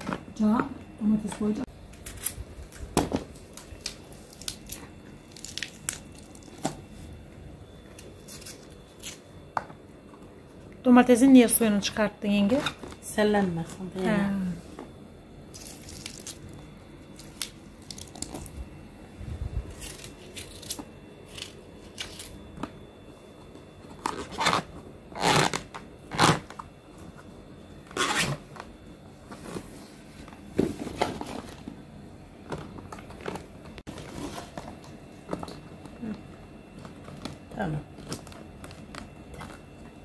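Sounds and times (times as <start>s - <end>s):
vegetables crunching: 3.4s - 6.8s, 15.5s - 16.6s, 19.7s - 22.4s.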